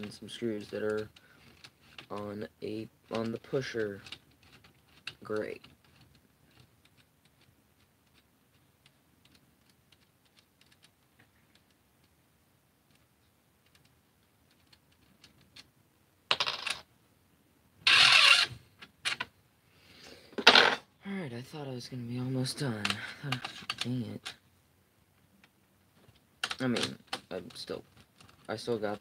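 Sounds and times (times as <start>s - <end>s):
plastic parts clattering and scraping: 20.3s - 20.9s.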